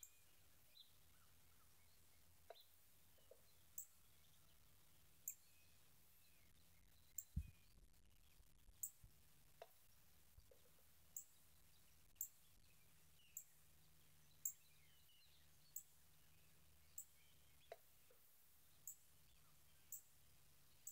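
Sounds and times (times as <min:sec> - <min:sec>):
faint birdsong: 0:00.0 - 0:20.9.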